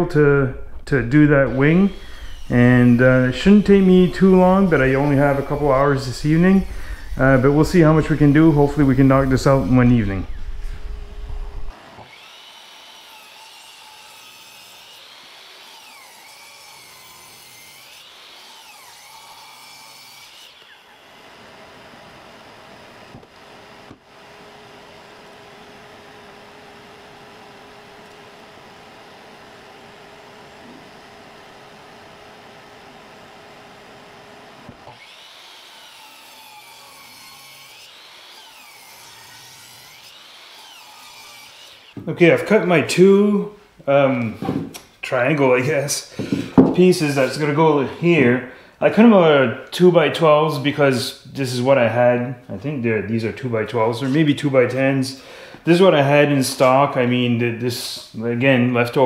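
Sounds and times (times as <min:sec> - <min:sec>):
power saw cutting wood: 0:01.0 - 0:43.3, 0:46.1 - 0:48.3.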